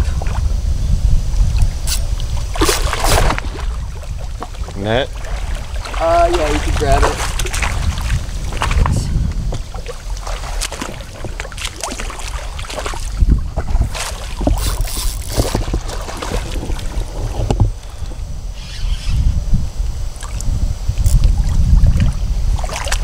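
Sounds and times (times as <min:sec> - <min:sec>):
wind rumble on microphone: 0:00.0 - 0:23.0
water sloshing around wading legs: 0:01.6 - 0:17.9, 0:21.8 - 0:23.0.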